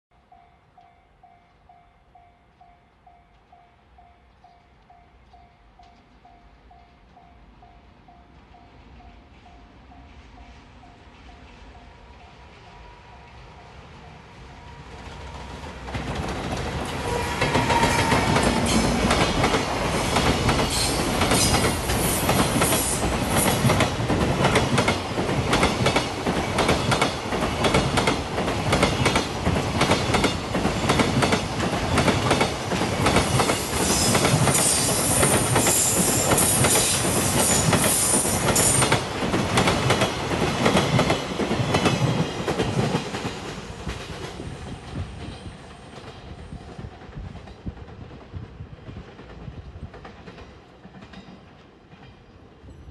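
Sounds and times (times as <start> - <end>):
electric locomotive passing: 0.2 - 52.9
train wheels clattering over rail joints: 15.8 - 46.2
high-pitched wheel squeal: 17.0 - 18.9.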